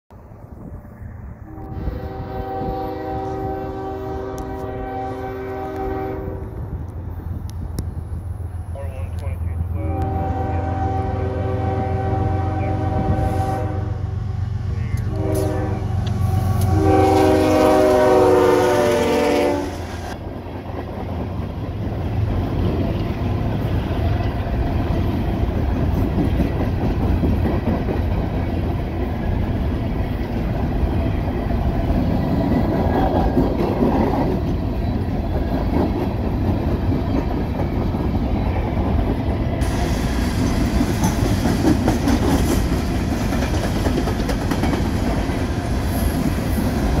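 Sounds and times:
locomotive air horn blasts: 1.4s - 6.4s, 9.8s - 14.1s, 15.0s - 20.0s
train wheels clacking on rails: 14.9s - 47.0s.

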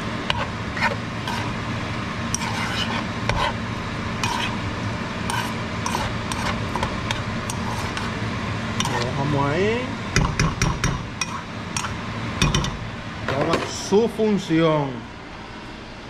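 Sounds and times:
food sizzling in a pan: 0.0s - 9.7s
utensil scraping a pan: 0.3s - 1.6s, 2.3s - 8.2s, 8.8s - 9.2s, 11.2s - 12.0s.

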